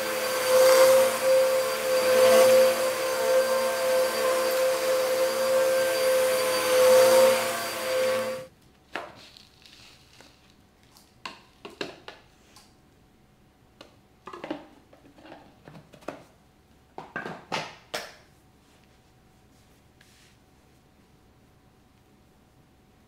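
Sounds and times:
vacuum cleaner whining: 0:00.0 - 0:08.5.

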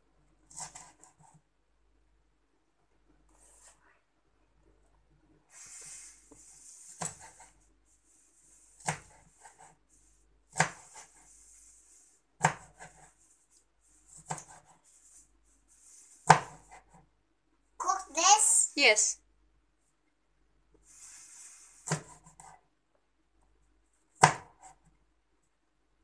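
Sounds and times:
faint hiss: 0:05.4 - 0:07.1, 0:20.8 - 0:22.0
knife chopping on plastic board: 0:07.0 - 0:07.5, 0:08.8 - 0:09.8, 0:10.5 - 0:11.1, 0:12.4 - 0:13.1, 0:14.1 - 0:14.7, 0:16.2 - 0:17.0, 0:21.8 - 0:22.5, 0:24.1 - 0:24.8.

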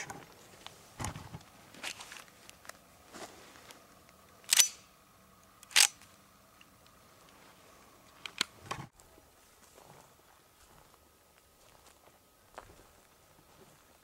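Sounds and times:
handgun metallic clicks: 0:04.5 - 0:04.9, 0:05.6 - 0:06.0.

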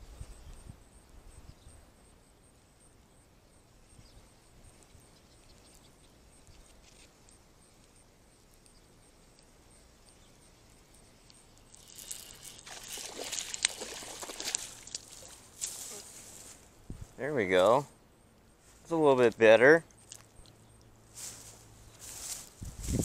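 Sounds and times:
fishing reel ticking: 0:11.6 - 0:13.8
rustling and splashing water: 0:11.6 - 0:16.8.

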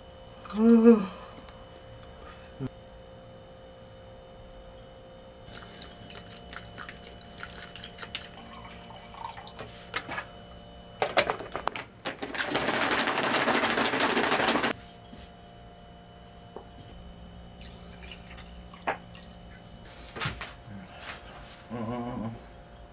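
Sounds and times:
plastic packaging crinkling: 0:12.0 - 0:14.7
water pouring into plastic pouch: 0:12.2 - 0:14.7.

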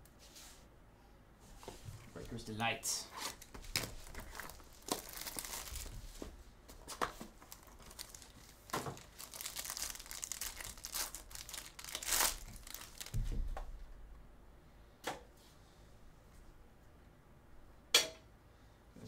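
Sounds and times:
wrapper ripping: 0:03.1 - 0:06.0, 0:07.4 - 0:13.3
foil wrapper crinkling: 0:03.2 - 0:06.1, 0:06.7 - 0:13.5.

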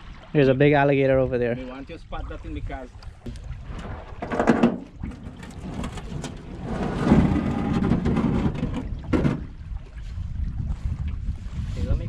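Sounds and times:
water splashing: 0:00.0 - 0:12.0
wind rumbling on microphone: 0:00.0 - 0:12.0
knocks on metal boat: 0:04.2 - 0:04.9, 0:07.1 - 0:09.5.

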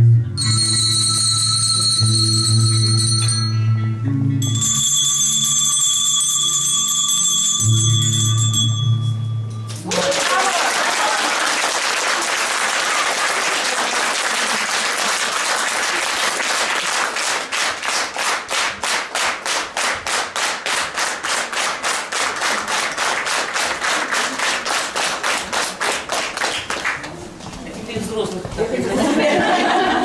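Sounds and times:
audience applauding: 0:09.8 - 0:27.2.

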